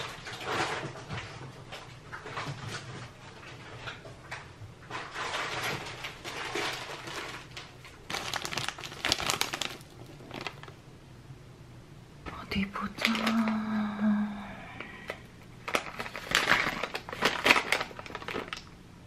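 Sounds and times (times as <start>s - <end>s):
faint low hum: 0.0s - 19.0s
rummaging in wicker basket: 4.9s - 10.7s, 15.6s - 18.6s
foil pouches crinkling: 4.9s - 10.8s, 13.0s - 13.6s, 15.1s - 18.8s.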